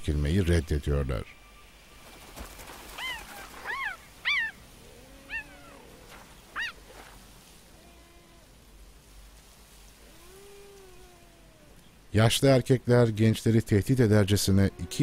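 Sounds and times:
cheetah high cries: 0:03.0 - 0:06.0, 0:06.6 - 0:06.8
cheetah moaning calls: 0:03.0 - 0:06.8, 0:07.7 - 0:08.6, 0:10.0 - 0:11.8, 0:14.4 - 0:15.0.

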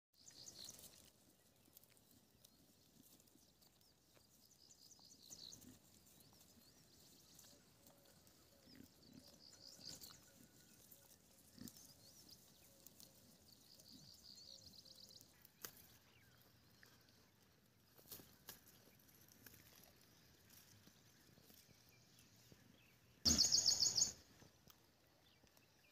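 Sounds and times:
goats tearing and chewing leaves: 0:00.5 - 0:04.4, 0:05.6 - 0:13.8, 0:15.1 - 0:22.6
high chirping: 0:23.3 - 0:24.2.

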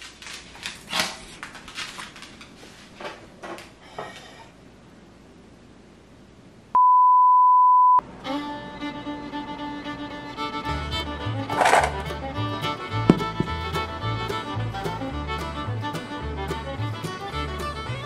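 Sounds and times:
loud steady beep: 0:06.8 - 0:08.0
music with strings: 0:08.2 - 0:18.0.

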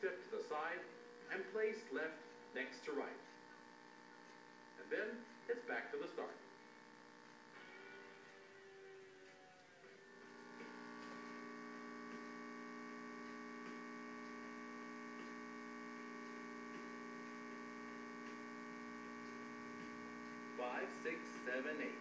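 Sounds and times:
steady electrical hum: 0:00.0 - 0:22.0
faint ticks: 0:13.0 - 0:15.6.

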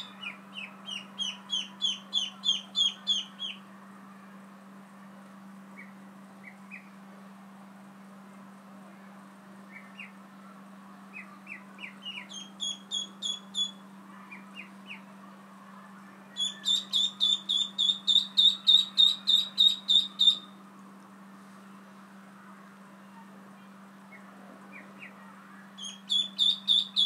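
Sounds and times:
ducklings peeping: 0:00.0 - 0:03.6, 0:11.2 - 0:15.0, 0:16.4 - 0:20.6, 0:25.8 - 0:27.0.

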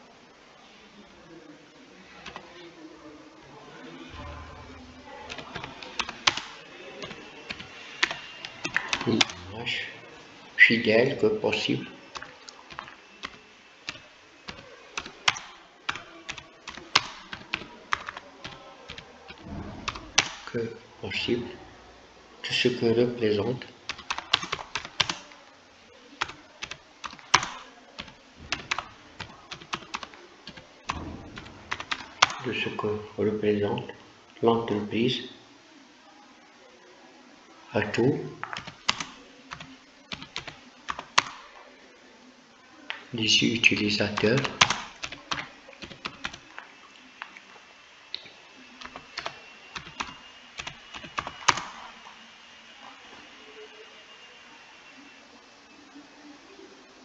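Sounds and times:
keyboard typing clicks: 0:02.2 - 0:02.4, 0:05.3 - 0:09.4, 0:12.1 - 0:20.5, 0:23.9 - 0:25.3, 0:26.2 - 0:32.5, 0:38.4 - 0:41.4, 0:44.1 - 0:47.4, 0:48.2 - 0:51.9.

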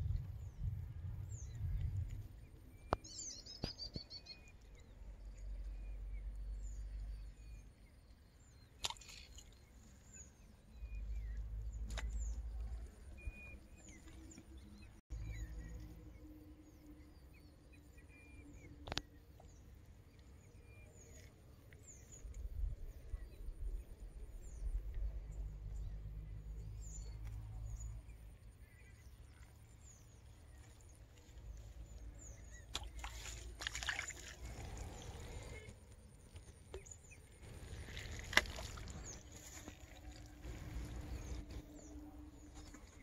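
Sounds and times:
wind rumble on microphone: 0:00.0 - 0:04.2, 0:34.3 - 0:43.0.

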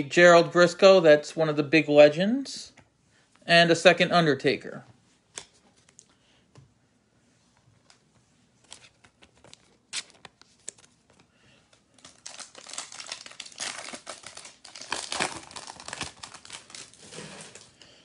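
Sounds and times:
foil wrapper tearing and crinkling: 0:09.9 - 0:10.3, 0:12.0 - 0:17.8.

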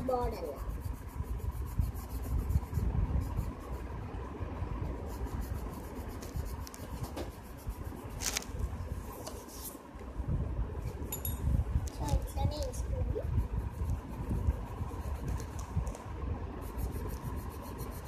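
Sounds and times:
pencil scratching on paper: 0:00.0 - 0:04.1, 0:04.8 - 0:08.5, 0:12.6 - 0:15.7, 0:16.6 - 0:18.0
constant low rumble: 0:00.0 - 0:18.0.

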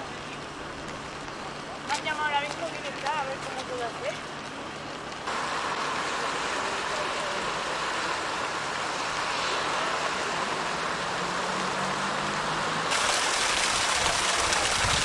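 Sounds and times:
floodwater rushing: 0:00.0 - 0:15.0
hose jetting water onto ground: 0:12.9 - 0:15.0.

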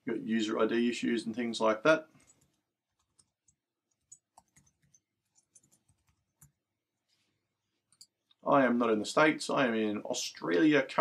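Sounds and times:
typing on computer keyboard: 0:02.2 - 0:06.6.

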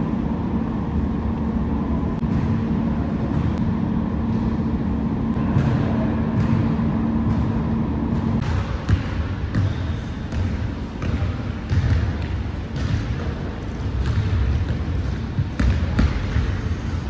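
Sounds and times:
basketball bouncing on wooden floor: 0:08.2 - 0:16.8.

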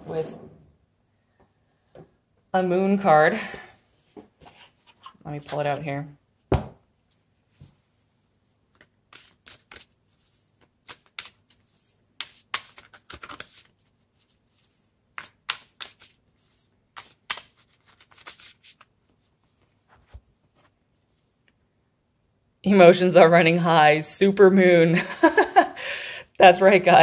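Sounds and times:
cards flicking and sliding: 0:08.8 - 0:13.7, 0:15.2 - 0:18.9.

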